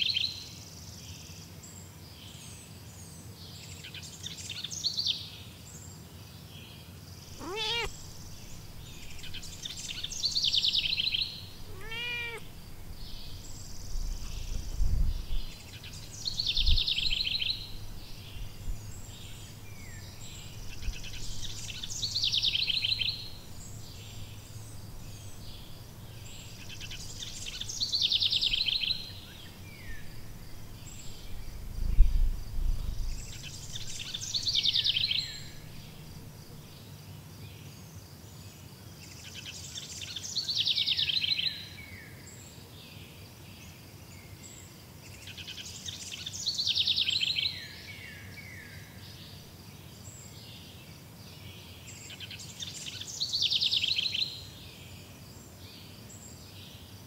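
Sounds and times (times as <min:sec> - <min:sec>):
faint insect buzz: 0:07.1 - 0:42.4
songbird trilling: 0:07.3 - 0:31.6.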